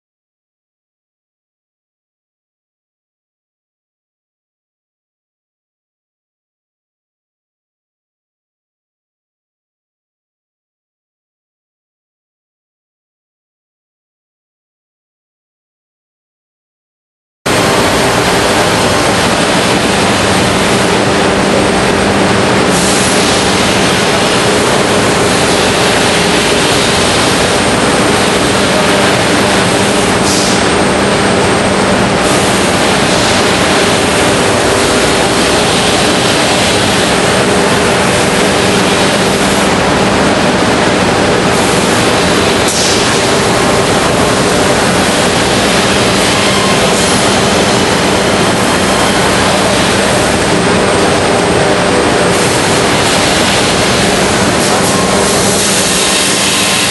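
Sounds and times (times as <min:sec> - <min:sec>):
router machine running: 0:17.5 - 0:56.9.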